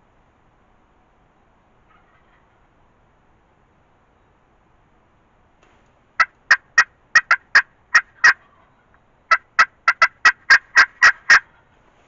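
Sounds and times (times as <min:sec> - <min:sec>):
turkey call sharp notes: 0:06.2 - 0:08.7, 0:09.3 - 0:11.6.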